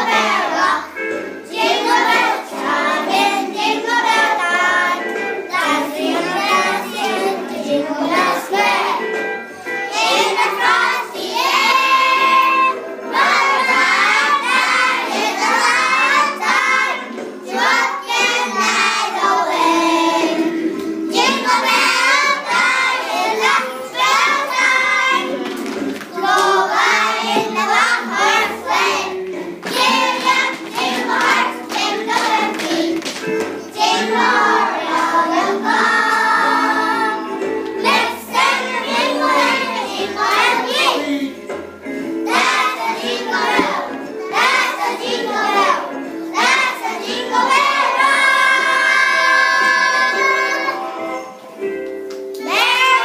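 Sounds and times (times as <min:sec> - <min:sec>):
children singing: 0:00.0 - 0:51.6, 0:52.4 - 0:53.0
children clapping hands: 0:24.6 - 0:26.6, 0:29.2 - 0:34.1, 0:51.8 - 0:53.0.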